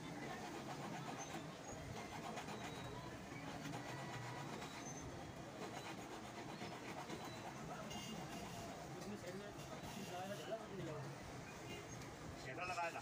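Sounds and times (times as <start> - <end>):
file rasping against metal ring: 0.3 - 3.0, 3.6 - 8.6.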